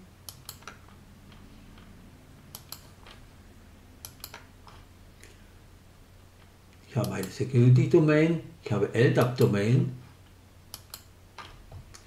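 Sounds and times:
faint low hum: 0:00.0 - 0:12.0
computer mouse clicking: 0:00.2 - 0:03.2, 0:04.0 - 0:04.9, 0:07.0 - 0:07.4, 0:10.7 - 0:12.0.

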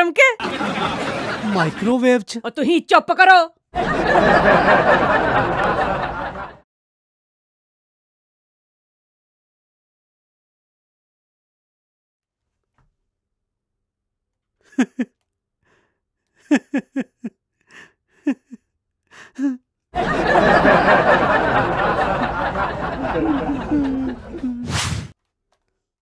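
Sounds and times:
man laughing: 0:14.7 - 0:15.1, 0:16.4 - 0:17.3, 0:18.2 - 0:18.6, 0:19.2 - 0:24.6
sharp whoosh: 0:24.6 - 0:25.1.

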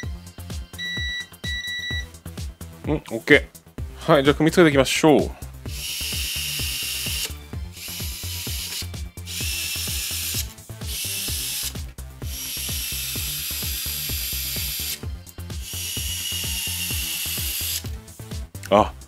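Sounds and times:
electric screwdriver motor whining: 0:05.7 - 0:15.0, 0:15.6 - 0:17.9.

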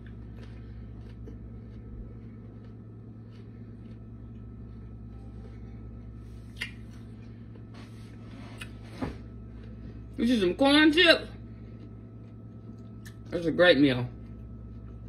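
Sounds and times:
corn chip being chewed: 0:00.0 - 0:07.7, 0:11.4 - 0:13.4
steady low hum: 0:00.0 - 0:15.0.

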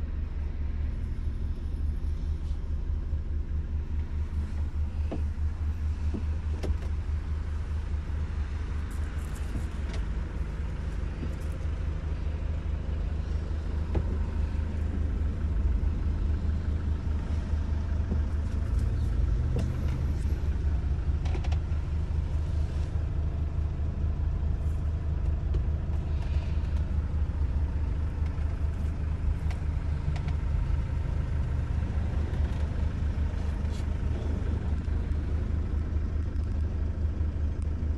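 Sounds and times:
minibus engine idling: 0:00.0 - 0:37.9
small clicks and knocks: 0:29.4 - 0:30.4.

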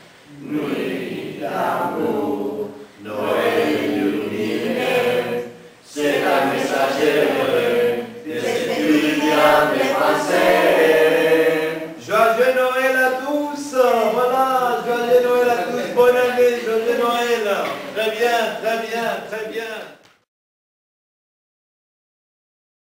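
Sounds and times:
group singing unaccompanied: 0:00.3 - 0:18.0.

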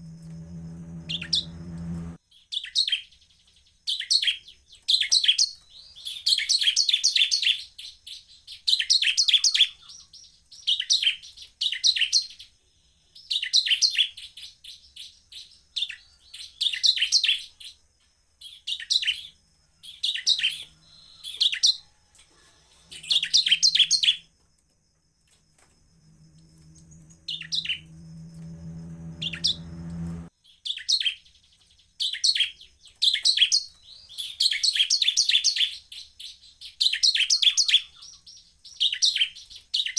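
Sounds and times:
low steady hum: 0:00.0 - 0:02.2, 0:25.6 - 0:30.3
bird chirping song: 0:00.0 - 0:39.9.

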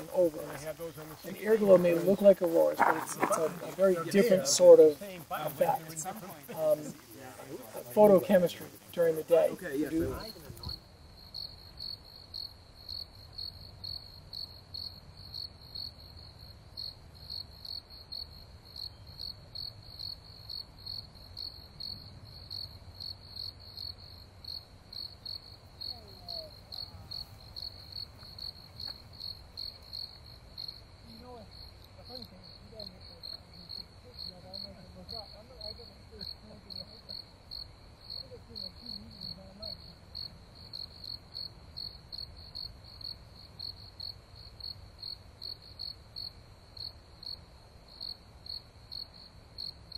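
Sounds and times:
crickets chirping: 0:00.0 - 0:49.9.

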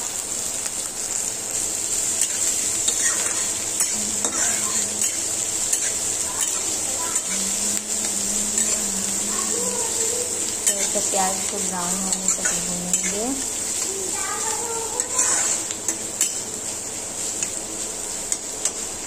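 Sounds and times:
onions sizzling in hot oil: 0:00.0 - 0:19.0
metal spatula scraping a pan: 0:02.2 - 0:07.4, 0:08.0 - 0:13.9, 0:15.0 - 0:16.6.

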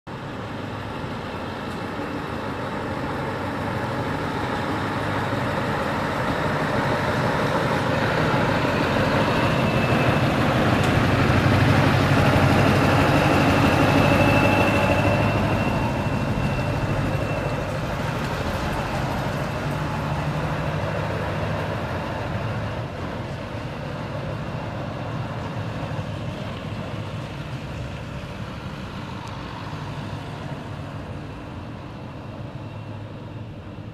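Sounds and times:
diesel truck driving past: 0:00.1 - 0:33.9
thin high whine: 0:13.6 - 0:20.3.

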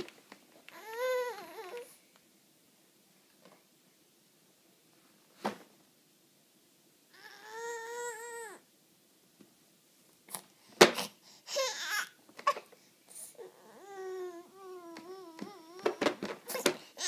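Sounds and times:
baby crying and whimpering: 0:00.7 - 0:02.0, 0:07.1 - 0:08.6, 0:11.0 - 0:17.0.

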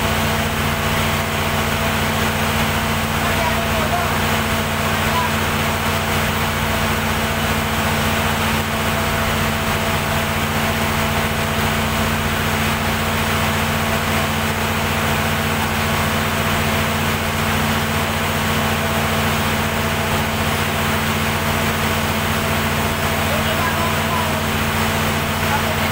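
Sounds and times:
diesel generator humming: 0:00.0 - 0:25.9.

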